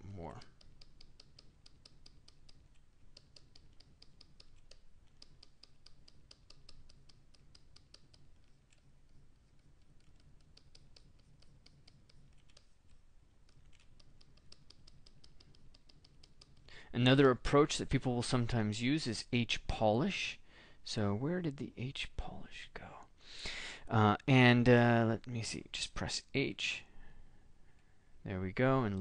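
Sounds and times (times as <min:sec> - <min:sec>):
rapid computer clicking: 0:00.4 - 0:16.7.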